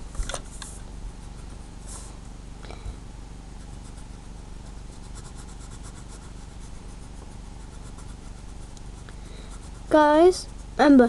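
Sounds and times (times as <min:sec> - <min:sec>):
steady low hum: 0:00.0 - 0:11.0
pencil scratching on paper: 0:03.6 - 0:11.0.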